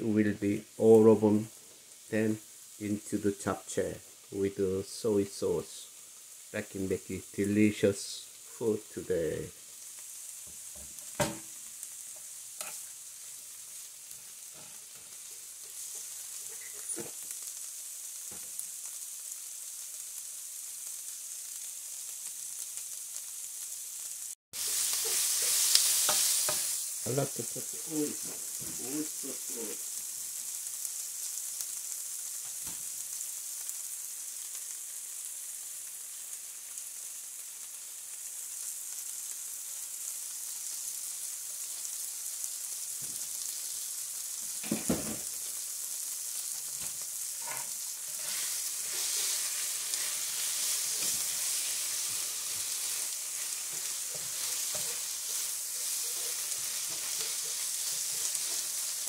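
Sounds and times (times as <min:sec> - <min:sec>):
vegetables sizzling in a skillet: 0:00.0 - 0:59.0
spatula scraping vegetables: 0:12.5 - 0:13.3, 0:47.2 - 0:59.0.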